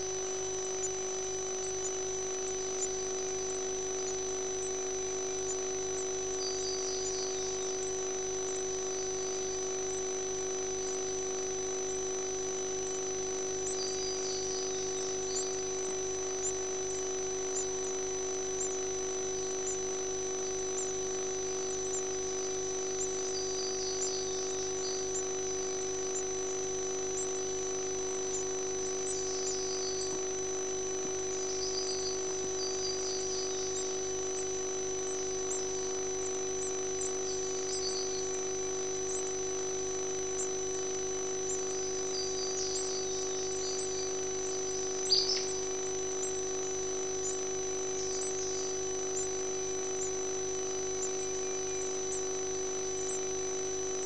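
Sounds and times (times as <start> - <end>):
electrical hum and whine: 0.0 - 54.0
faint high chirps: 28.2 - 30.2, 41.4 - 46.5.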